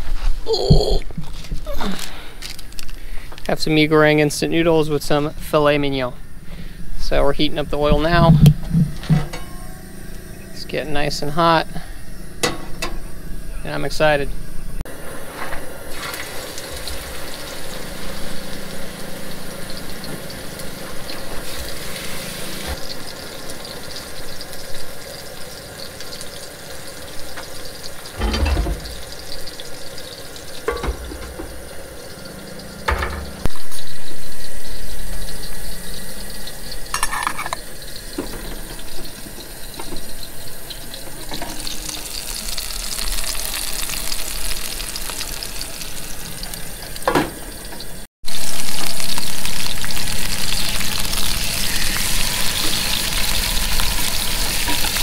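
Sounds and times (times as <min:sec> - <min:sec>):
steaks sizzling in a skillet: 0:15.9 - 0:47.1, 0:48.3 - 0:55.0
pan and utensils knocking: 0:28.2 - 0:29.1, 0:30.6 - 0:31.6, 0:32.9 - 0:33.5.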